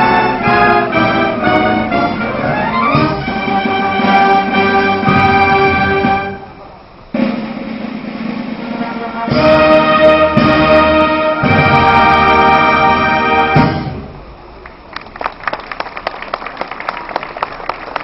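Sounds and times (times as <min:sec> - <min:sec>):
wind band playing: 0:00.0 - 0:14.5
applause: 0:14.6 - 0:18.0.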